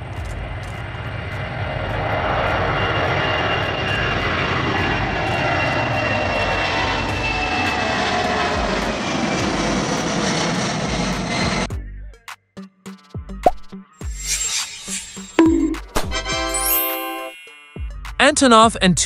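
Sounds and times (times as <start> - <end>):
jet aircraft flying past: 0.0 - 11.7.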